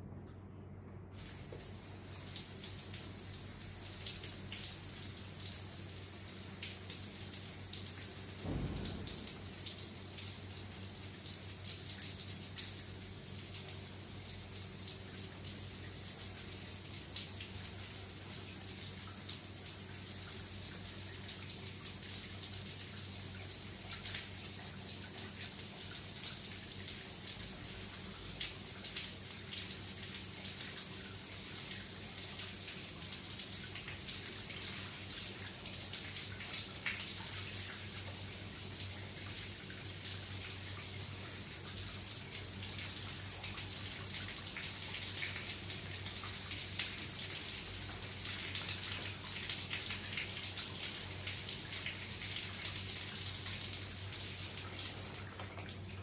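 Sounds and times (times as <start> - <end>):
faint low hum: 0.0 - 16.9
shower spray splashing: 1.2 - 11.0.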